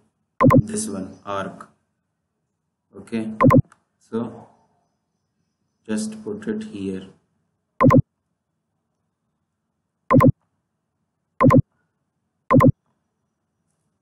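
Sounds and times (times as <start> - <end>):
computer mouse clicking: 7.8 - 8.0, 10.1 - 10.3, 11.4 - 11.6, 12.5 - 12.7.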